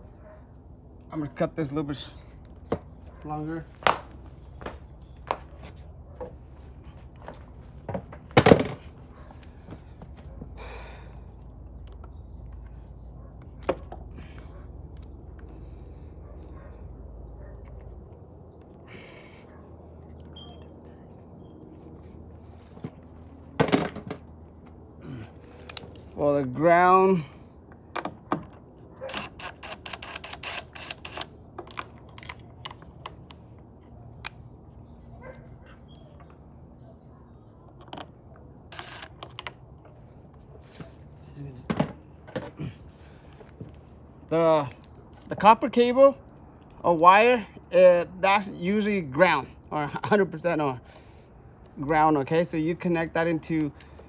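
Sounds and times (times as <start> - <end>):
tools clicking and knocking: 27.9 - 33.4
wire stripper rasping: 29.0 - 33.4.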